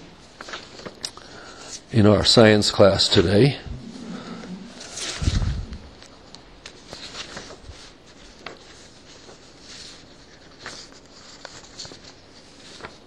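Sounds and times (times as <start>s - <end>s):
soft rustling: 3.1s - 13.0s.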